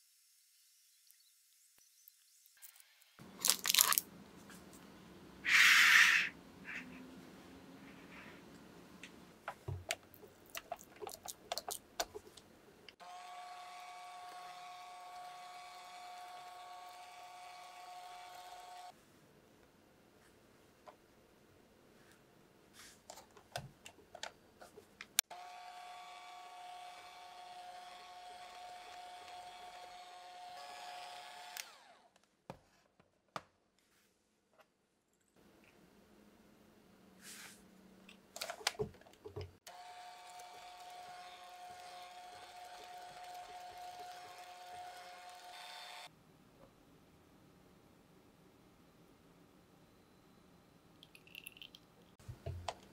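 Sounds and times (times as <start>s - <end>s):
electric mixer whisking: 13.0s - 18.9s, 25.3s - 32.0s, 39.7s - 46.1s
stand mixer motor running: 39.7s - 46.1s.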